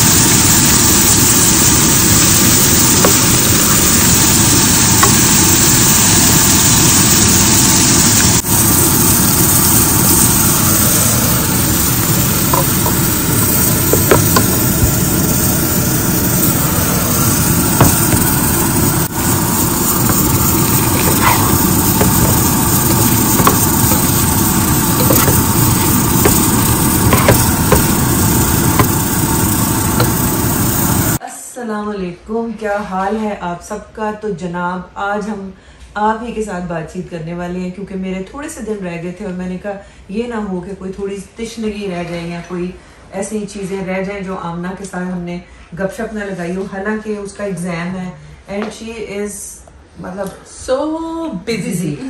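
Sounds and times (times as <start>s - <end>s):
vegetables sizzling in oil: 0.0s - 31.2s
spatula scraping and tapping pan: 12.0s - 13.2s, 20.0s - 29.2s.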